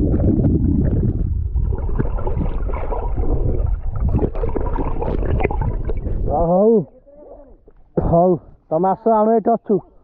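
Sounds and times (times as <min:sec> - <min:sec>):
water gurgling underwater: 0:00.0 - 0:06.5.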